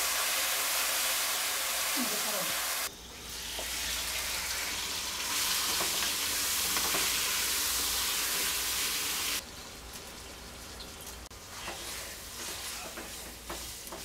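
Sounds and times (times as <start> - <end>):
chicken wings sizzling in oil: 0.0 - 14.0.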